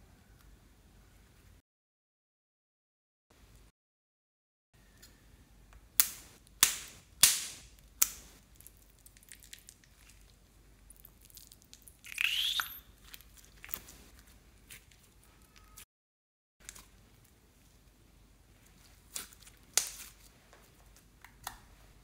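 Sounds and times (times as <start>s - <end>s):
wet squelch with squeak: 11.2s - 14.1s, 14.7s - 15.8s.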